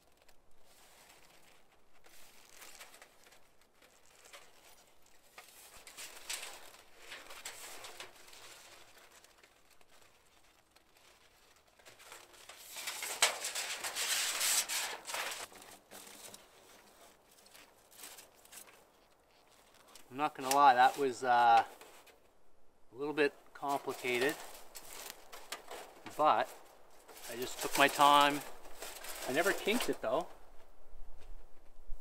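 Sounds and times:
sheet metal rustling and scraping: 0.7 - 22.3, 23.6 - 30.3.

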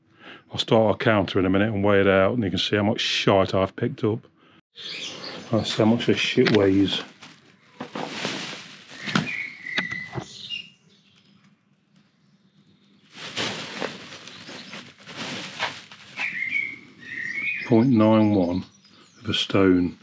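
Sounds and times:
bird chirping: 4.8 - 6.4, 8.9 - 13.1, 13.7 - 20.0
plastic bag rustling: 5.8 - 9.8, 12.9 - 17.3.

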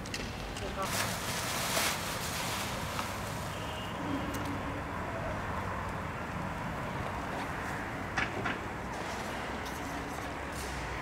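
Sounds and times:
plastic wrap rustling: 0.8 - 3.7.

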